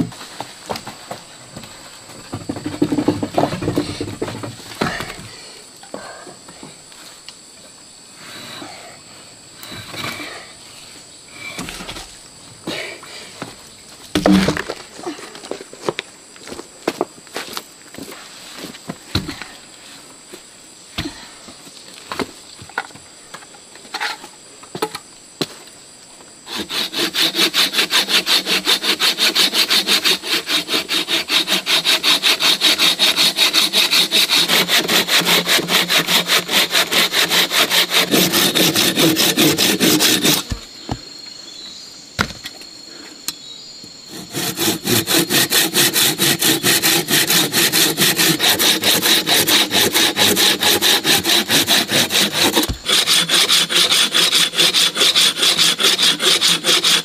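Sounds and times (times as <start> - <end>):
hand saw cutting log: 26.5 - 40.6, 44.1 - 57.0.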